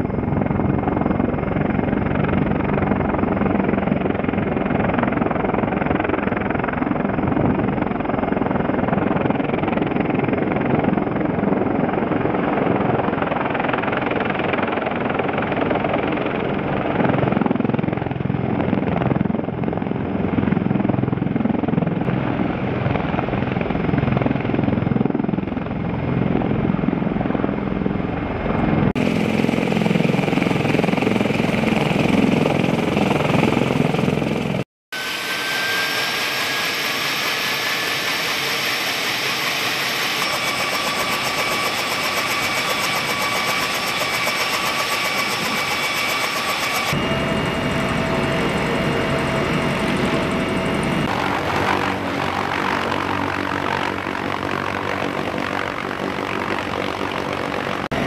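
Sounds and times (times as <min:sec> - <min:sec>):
helicopter rotors: 0:00.0 - 0:58.0
high turbine whine: 0:27.0 - 0:58.0.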